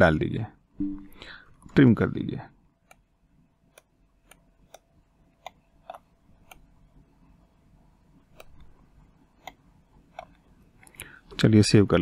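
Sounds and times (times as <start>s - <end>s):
computer mouse clicking: 2.8s - 3.1s, 3.7s - 6.7s, 8.3s - 8.8s, 9.4s - 11.1s.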